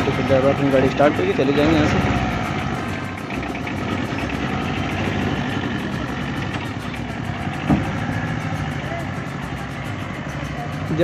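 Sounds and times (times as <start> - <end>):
truck engine idling: 0.0 - 11.0.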